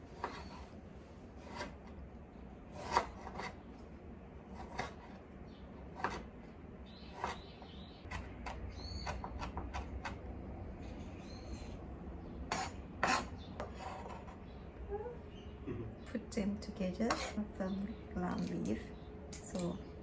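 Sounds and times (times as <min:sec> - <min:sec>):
knife chopping on wooden board: 0:02.8 - 0:03.6, 0:04.6 - 0:05.2, 0:06.0 - 0:06.3, 0:08.1 - 0:10.2.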